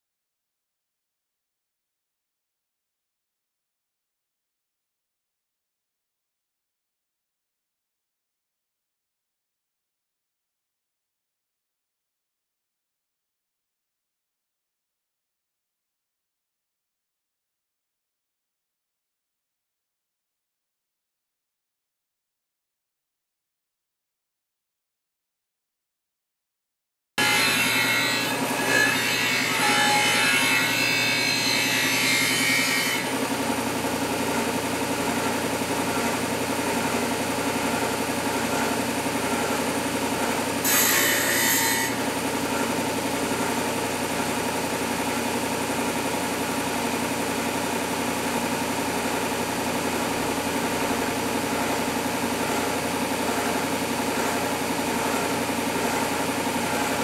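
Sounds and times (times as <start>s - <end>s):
bench sander motor running: 31.1s - 40.6s, 41.9s - 57.0s.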